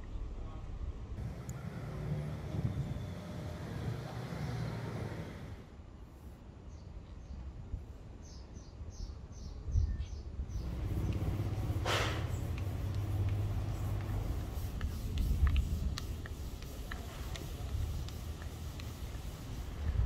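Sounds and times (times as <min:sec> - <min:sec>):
loud swish: 0:10.6 - 0:15.2
low steady rumble: 0:10.6 - 0:20.0.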